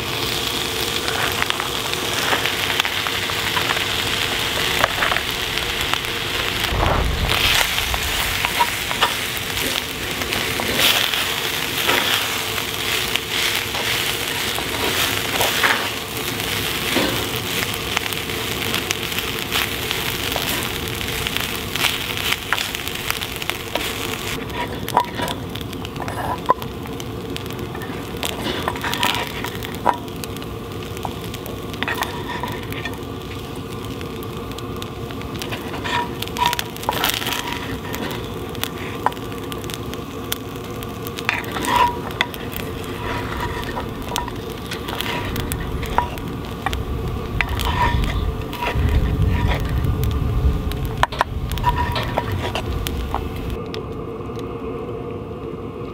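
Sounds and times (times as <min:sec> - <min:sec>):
fire crackling and popping: 0:00.0 - 0:55.9
food sizzling over campfire: 0:00.0 - 0:55.9
low rumble: 0:03.0 - 0:13.0, 0:35.2 - 0:53.7.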